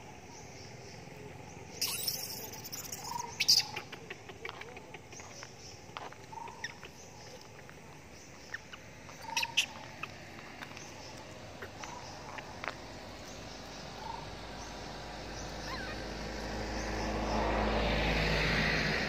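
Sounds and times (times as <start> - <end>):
high squeaks and chirps: 1.7 - 13.0, 15.4 - 16.2.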